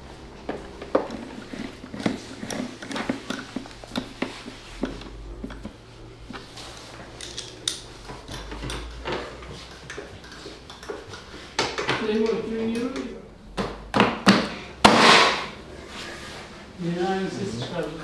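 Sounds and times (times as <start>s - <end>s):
hand tools and metal clinking: 0.2s - 13.0s.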